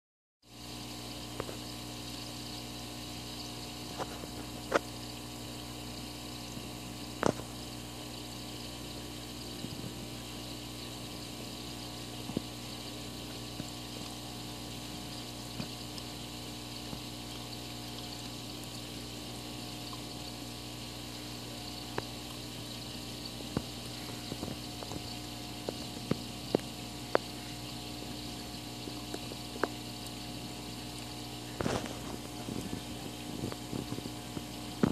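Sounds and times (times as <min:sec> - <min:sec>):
aquarium pump humming: 0:00.4 - 0:34.9
water bubbling: 0:07.2 - 0:34.9.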